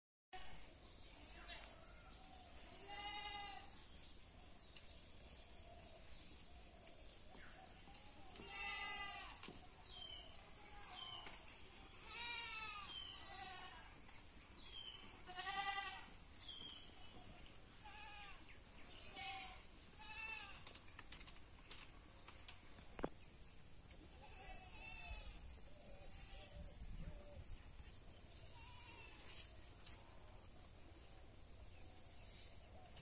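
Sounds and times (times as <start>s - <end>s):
goat bleating: 2.8s - 3.7s, 8.4s - 9.4s, 12.0s - 13.9s, 15.2s - 16.1s, 17.8s - 18.4s, 19.0s - 20.6s, 28.5s - 29.4s.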